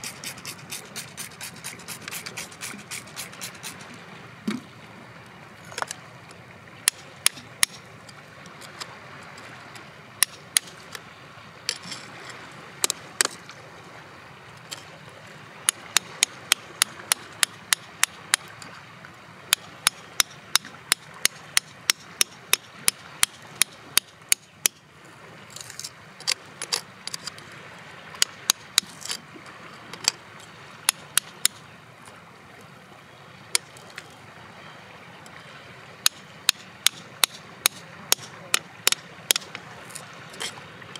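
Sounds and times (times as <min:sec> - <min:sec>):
hammer striking chisel: 0:36.0 - 0:39.5.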